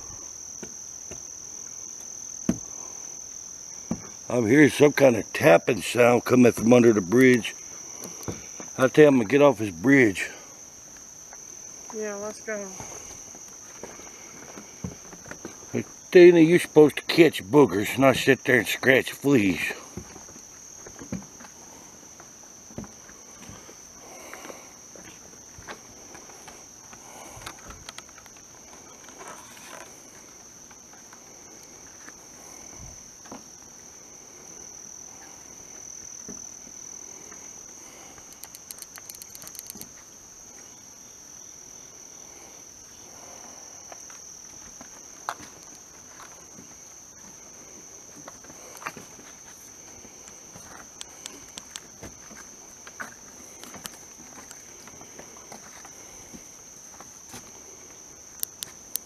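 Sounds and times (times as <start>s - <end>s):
night insects chorus: 0.0s - 59.0s
footsteps on wooden boardwalk: 12.8s - 15.7s, 22.2s - 31.2s, 43.9s - 57.9s.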